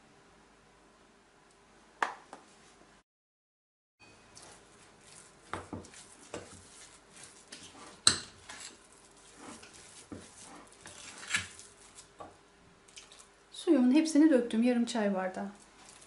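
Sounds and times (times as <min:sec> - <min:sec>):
spoon scraping paste: 0:04.3 - 0:12.3.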